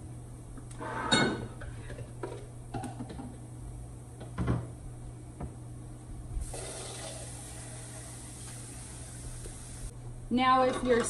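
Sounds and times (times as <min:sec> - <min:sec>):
tap water running: 0:06.4 - 0:09.9.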